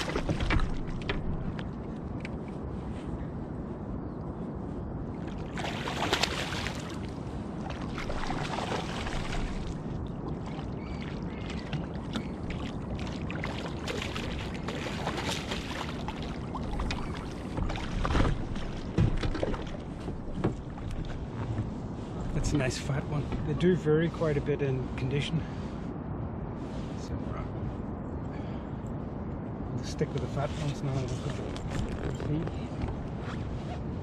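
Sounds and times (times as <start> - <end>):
water noise: 0.0 - 25.2
wind: 0.0 - 34.0.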